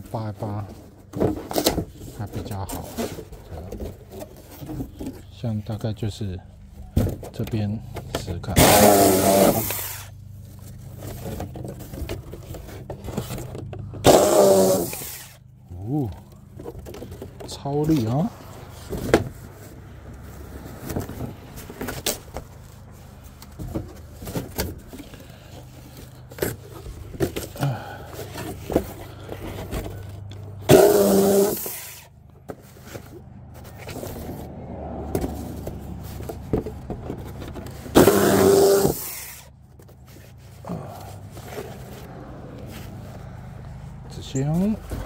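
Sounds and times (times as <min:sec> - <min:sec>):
knocks and scraping: 0:00.0 - 0:45.0
electric saw cutting cardboard: 0:08.6 - 0:10.2, 0:14.0 - 0:15.4, 0:30.7 - 0:32.1, 0:37.9 - 0:39.5.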